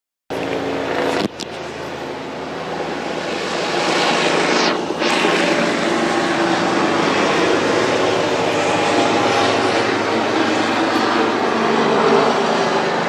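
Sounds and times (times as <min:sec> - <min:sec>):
helicopter engine and rotor noise: 0:00.3 - 0:13.0.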